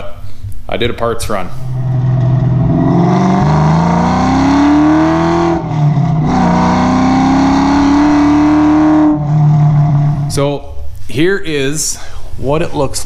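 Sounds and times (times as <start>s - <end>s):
car engine accelerating hard: 1.5s - 10.4s.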